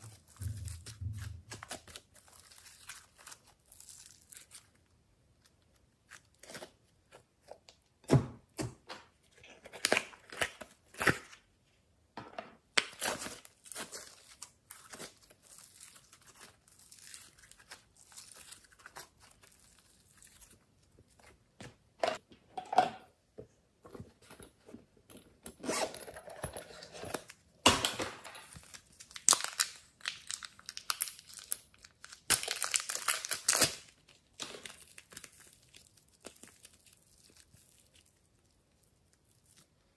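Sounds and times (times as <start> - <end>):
slime crackling and squishing: 0.0 - 6.9, 12.9 - 21.3, 28.4 - 39.8
plastic pouch crinkling: 28.4 - 39.7.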